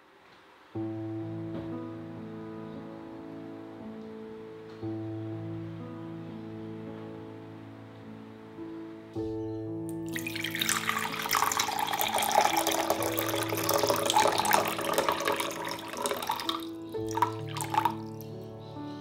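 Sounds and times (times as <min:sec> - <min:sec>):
water pouring into glass jug: 0:09.9 - 0:18.4
water dripping: 0:09.9 - 0:18.5.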